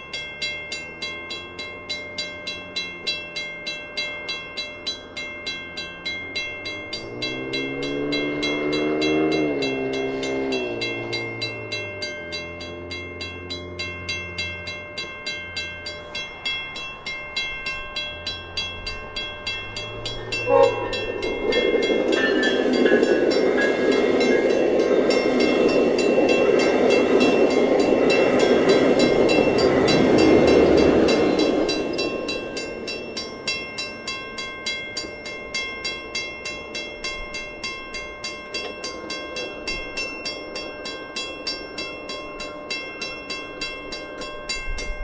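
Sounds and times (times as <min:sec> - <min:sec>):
crossing warning bell ringing: 0:00.0 - 0:45.0
train wheels rumbling on rails: 0:00.0 - 0:45.0.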